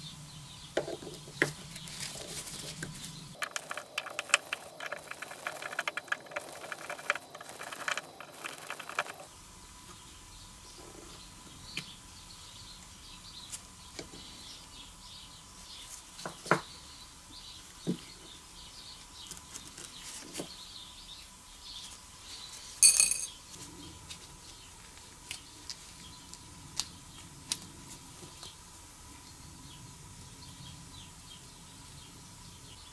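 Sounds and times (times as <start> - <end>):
faint steady whine: 0.0 - 19.6.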